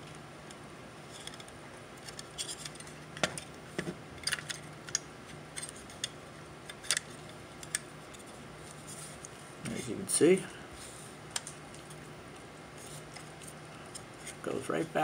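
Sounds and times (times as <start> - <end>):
plastic and metal parts clicking: 4.2 - 5.0.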